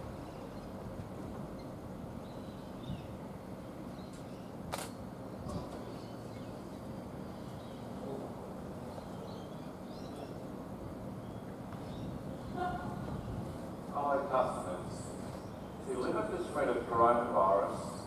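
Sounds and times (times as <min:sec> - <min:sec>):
faint bird chirps: 0:00.0 - 0:00.8, 0:01.5 - 0:03.2, 0:05.4 - 0:10.5
sharp click: 0:04.1 - 0:05.0.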